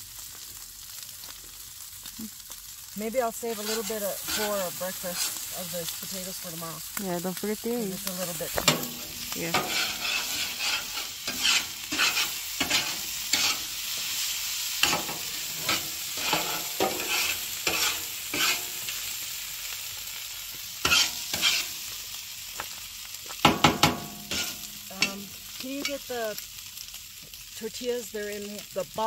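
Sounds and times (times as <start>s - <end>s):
food sizzling on a griddle: 0.0s - 29.0s
utensil scraping griddle: 3.1s - 6.5s, 8.0s - 19.3s, 20.8s - 21.9s, 23.4s - 26.2s.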